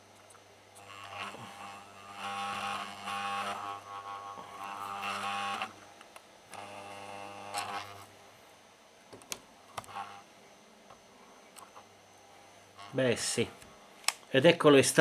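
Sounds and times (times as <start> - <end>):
soldering gun buzzing: 0.0 - 8.5, 9.1 - 14.2.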